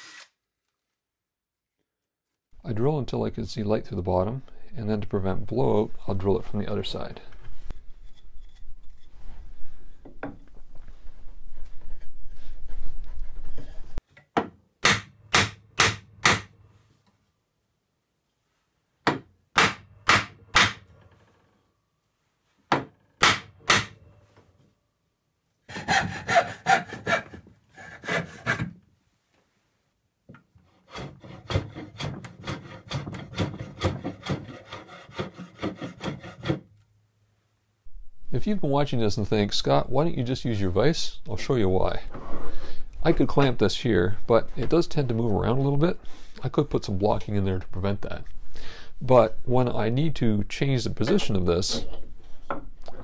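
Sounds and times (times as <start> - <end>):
handsaw rasping: 25.7 - 28.7, 30.7 - 36.7.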